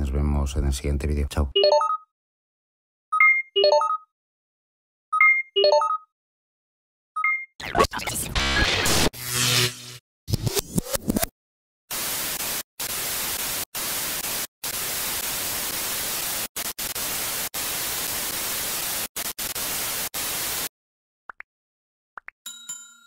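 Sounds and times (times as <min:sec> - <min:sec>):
tv static hiss: 0:11.9 - 0:20.7
notification bell ding: 0:22.5 - 0:23.0.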